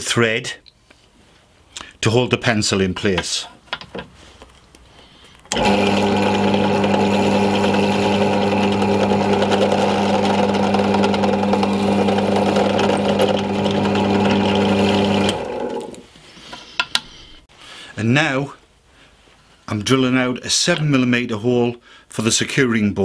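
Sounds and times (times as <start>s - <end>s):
drill bit drilling into wood: 5.5s - 16.0s
drill press motor humming: 5.5s - 16.0s.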